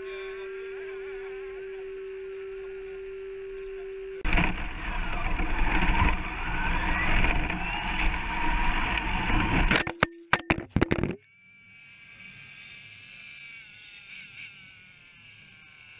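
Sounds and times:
steady hum: 0:00.0 - 0:11.2
tyre and road noise: 0:04.2 - 0:11.2
toy truck motor whine: 0:11.4 - 0:15.9.

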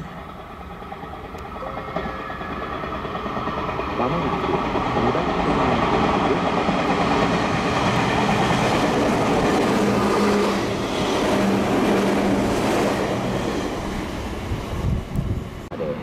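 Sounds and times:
train wheels rushing on rail: 0:00.0 - 0:16.0.

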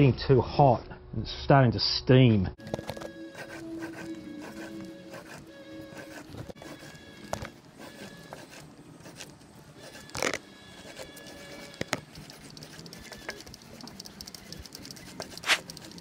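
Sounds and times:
paint roller sticky rolling: 0:02.6 - 0:16.0
louder rasp: 0:02.7 - 0:13.7
scattered clicks: 0:11.3 - 0:16.0.

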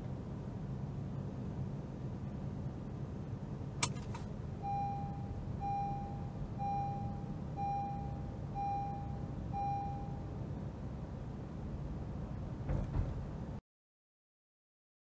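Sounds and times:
moving car hum: 0:00.0 - 0:13.6
seat belt buckle click: 0:03.8 - 0:04.3
seat belt reminder chime beeping: 0:03.8 - 0:10.3.

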